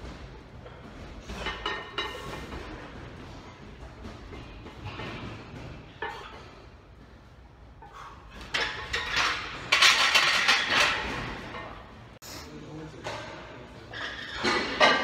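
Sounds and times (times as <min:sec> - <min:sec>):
weight plates clanking on metal: 0:01.2 - 0:02.9, 0:08.2 - 0:11.9.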